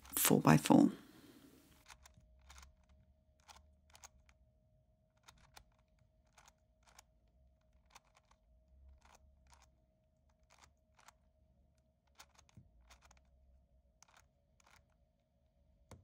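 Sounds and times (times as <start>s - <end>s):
puzzle cube layers clicking: 5.2s - 7.2s, 7.8s - 8.4s, 12.1s - 13.2s.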